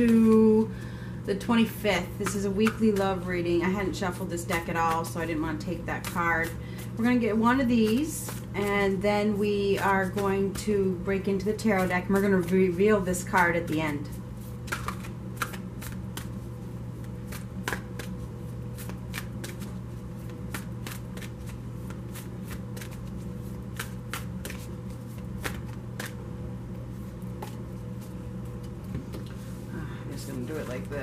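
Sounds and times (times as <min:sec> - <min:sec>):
steady low hum: 0:00.0 - 0:31.0
cards being shuffled: 0:13.4 - 0:26.2.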